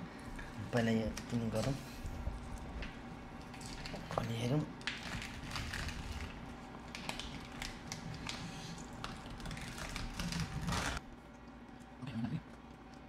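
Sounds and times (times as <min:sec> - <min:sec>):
fried chicken crackling: 0:00.8 - 0:11.0
rustling crackle: 0:01.1 - 0:11.0.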